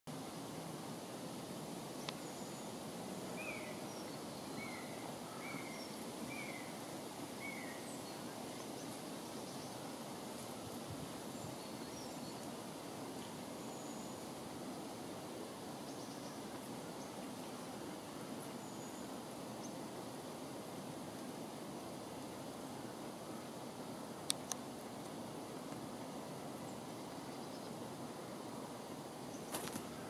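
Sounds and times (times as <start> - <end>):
woodland background noise: 0.1 - 30.0.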